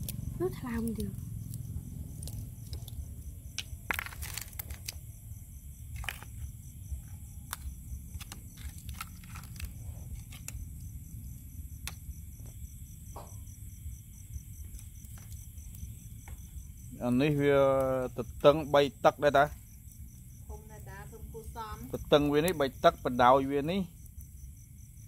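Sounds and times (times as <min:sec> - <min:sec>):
shells clicking and scraping: 0:07.5 - 0:10.6.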